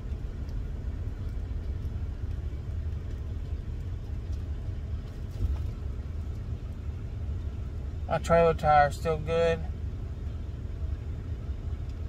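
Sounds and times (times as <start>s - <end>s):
diesel truck engine rumble: 0.0s - 12.0s.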